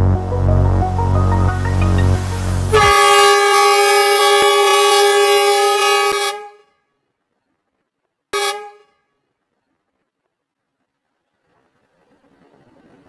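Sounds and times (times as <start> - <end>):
locomotive air horn blast: 0.0 - 6.7, 8.4 - 9.0.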